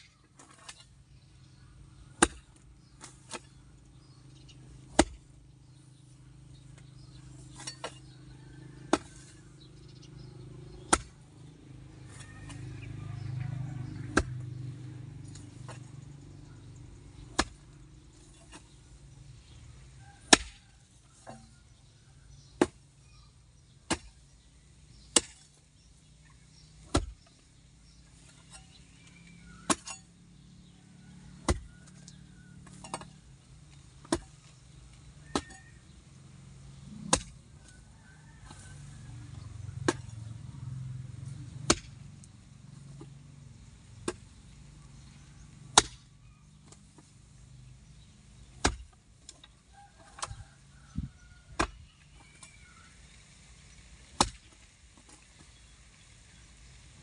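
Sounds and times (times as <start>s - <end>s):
garden hoe chopping into soil: 0.3s - 3.6s, 4.2s - 5.8s, 8.8s - 9.6s, 10.2s - 11.2s, 13.9s - 16.0s, 17.2s - 18.8s, 20.2s - 21.6s, 23.8s - 30.5s, 31.3s - 40.3s, 40.9s - 49.4s, 50.1s - 53.1s, 53.7s - 56.1s.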